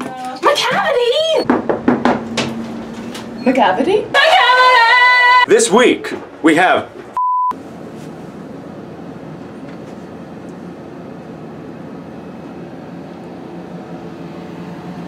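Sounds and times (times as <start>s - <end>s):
low rumbling hum: 1.2s - 5.5s
electronic beep: 7.2s - 7.5s.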